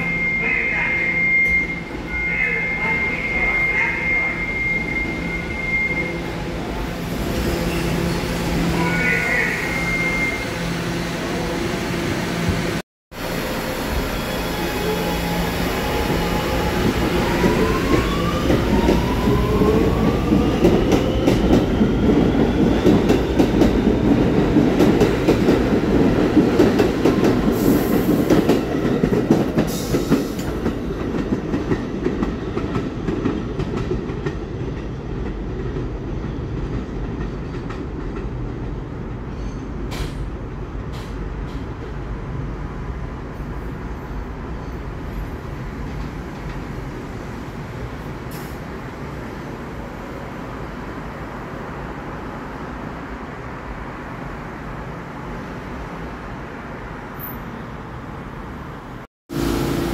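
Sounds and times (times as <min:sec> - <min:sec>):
train wheels rumbling on rails: 0:14.8 - 0:49.2.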